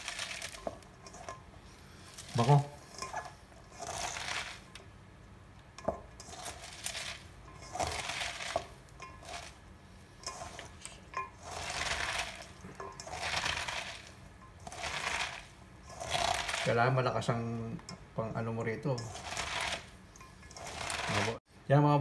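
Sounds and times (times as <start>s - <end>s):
cabbage crunching being kneaded: 11.4s - 16.8s.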